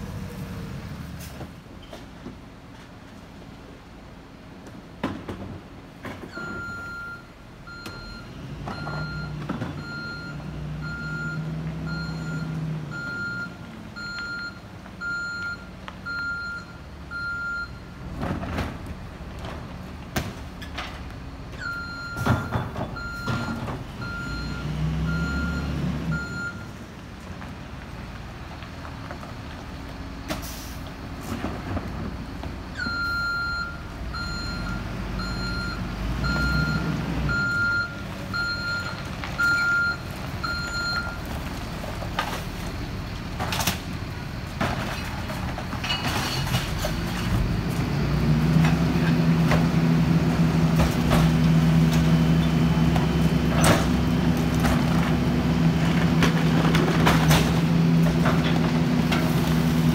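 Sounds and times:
truck reverse alarm beeping: 6.3 - 17.9, 21.6 - 26.8, 32.8 - 41.3
diesel engine running: 23.0 - 59.9.

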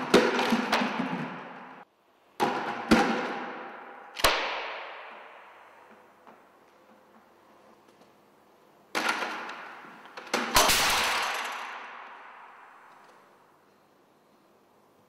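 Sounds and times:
objects crashing onto concrete: 10.3 - 12.0.

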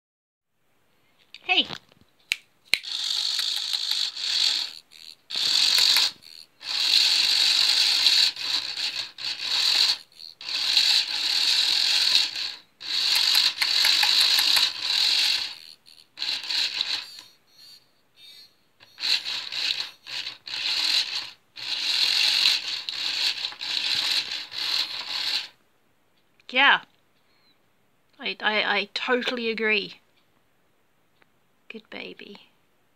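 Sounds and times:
toy motor whirring and rattling: 2.8 - 25.6.

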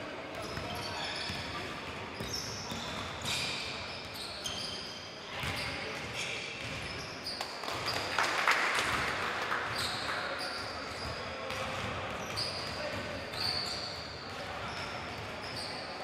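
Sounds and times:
sneaker squeaks: 0.3 - 8.1, 9.7 - 16.0
players' voices: 8.8 - 16.0.

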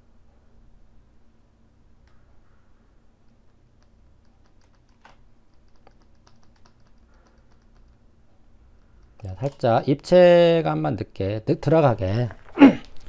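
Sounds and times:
low steady hum: 0.0 - 13.0
keyboard keys clicking: 3.2 - 8.0.

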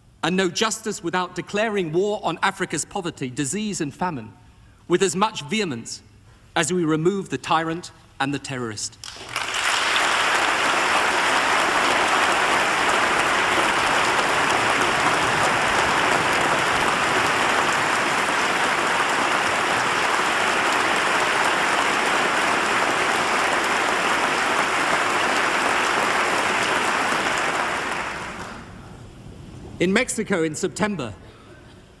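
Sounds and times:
large crowd applauding: 9.0 - 28.8.

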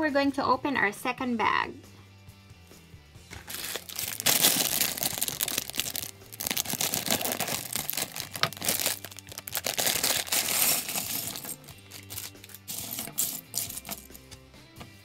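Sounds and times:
plastic bag crinkling and tearing: 3.4 - 14.2.

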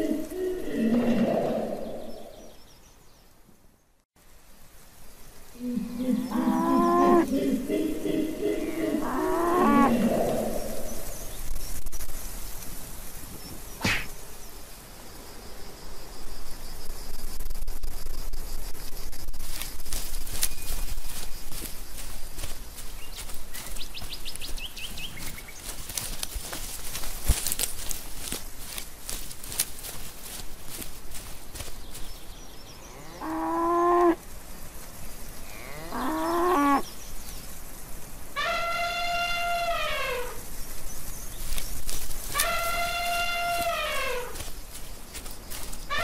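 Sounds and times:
insects chirring: 0.0 - 46.0
cow mooing: 6.2 - 7.3, 8.6 - 10.5, 35.5 - 36.8.

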